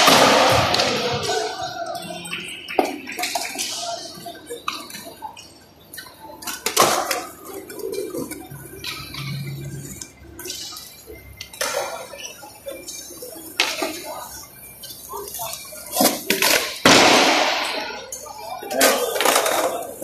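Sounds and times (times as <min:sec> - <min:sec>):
skateboard decks clacking: 0:18.7 - 0:20.0.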